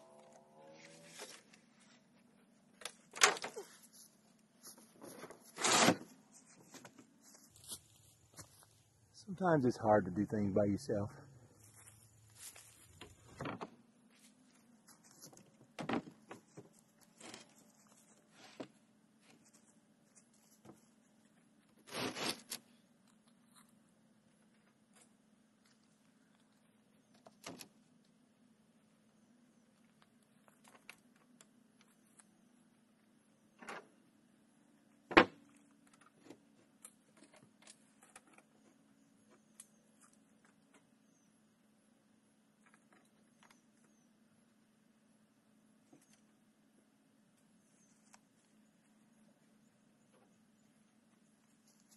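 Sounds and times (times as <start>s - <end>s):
wood scraping: 4.8s - 7.1s.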